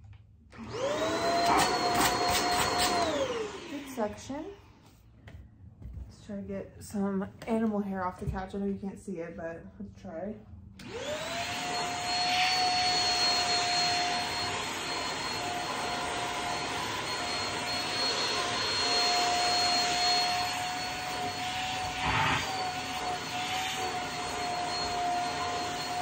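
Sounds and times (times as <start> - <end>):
handheld vacuum whining: 0.5 - 4.4, 10.8 - 26.0.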